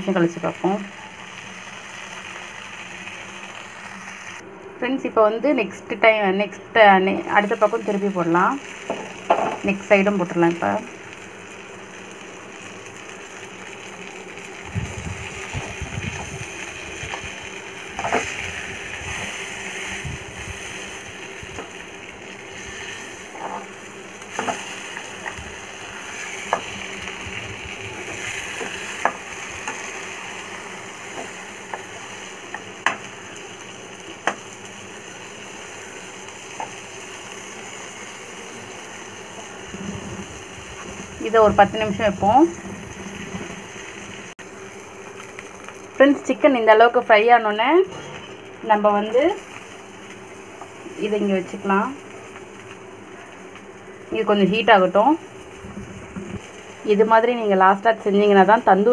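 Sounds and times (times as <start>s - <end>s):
chicken sizzling in a frying pan: 0.0s - 4.5s, 7.2s - 58.9s.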